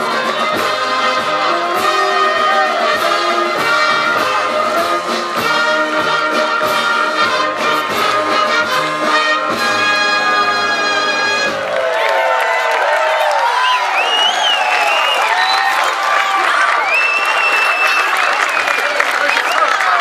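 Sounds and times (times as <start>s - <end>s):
steady drum beat: 0.0s - 11.8s
trumpets and trombones: 0.0s - 12.0s.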